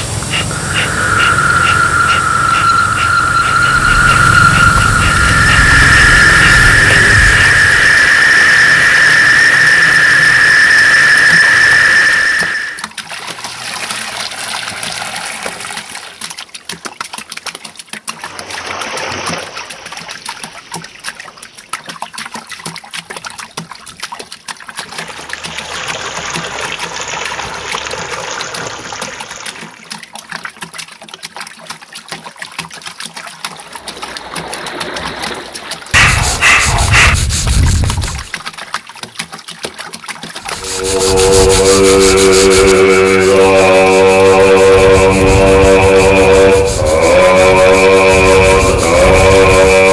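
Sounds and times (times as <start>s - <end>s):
high-pitched tone: 0.0s - 12.8s, 36.0s - 38.3s, 40.4s - 49.9s.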